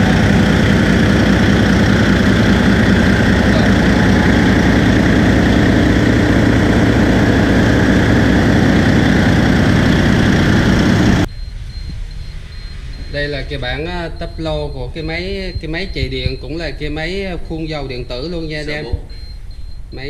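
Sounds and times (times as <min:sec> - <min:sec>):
marine diesel engine idling: 0:00.0 - 0:11.3.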